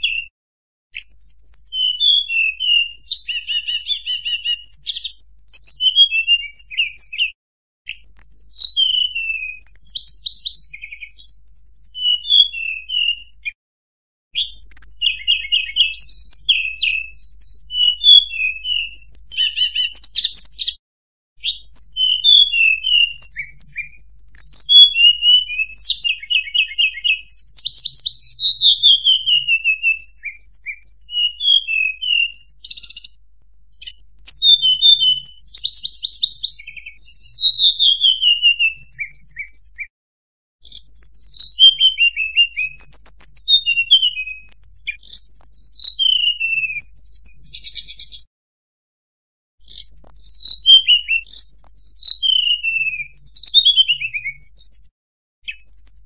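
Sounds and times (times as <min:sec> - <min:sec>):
recorded bird song whistles and trills: 0:00.0 - 0:00.3, 0:00.9 - 0:13.6, 0:14.3 - 0:20.8, 0:21.4 - 0:39.9, 0:40.6 - 0:48.3, 0:49.6 - 0:56.0.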